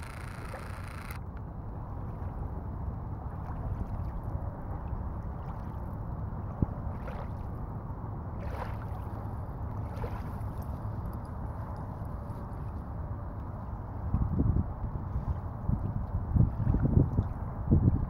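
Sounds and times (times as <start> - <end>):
small waves lapping on shore: 0.0 - 12.8
wind rumble on microphone: 0.0 - 18.0.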